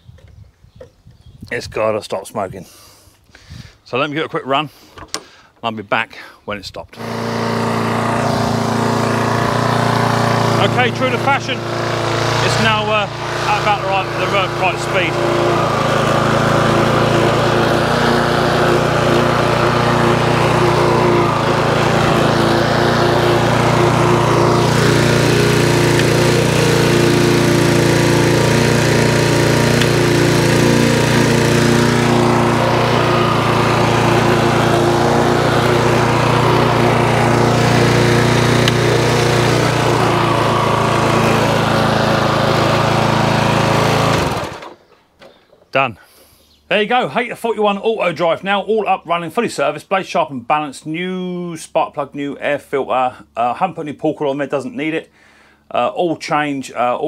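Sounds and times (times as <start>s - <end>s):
lawnmower engine running: 7.0s - 45.0s.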